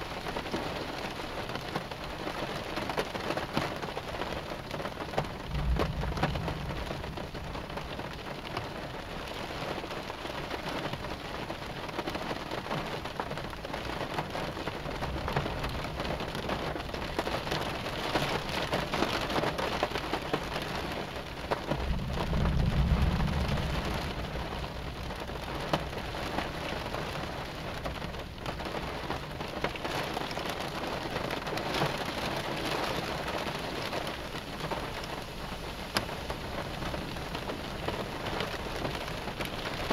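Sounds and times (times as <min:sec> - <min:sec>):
heavy rain: 0:00.0 - 0:39.9
thunder rumble: 0:04.9 - 0:09.9, 0:14.5 - 0:39.9.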